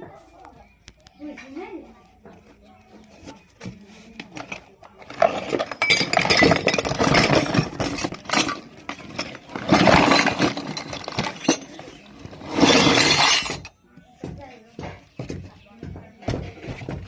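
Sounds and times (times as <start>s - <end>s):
toy kitchenware clattering: 3.6s - 13.8s.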